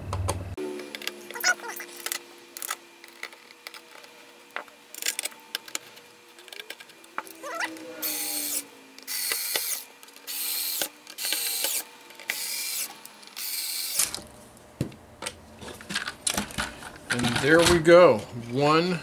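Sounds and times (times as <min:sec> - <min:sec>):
electric screwdriver driving screws: 0:06.4 - 0:14.2.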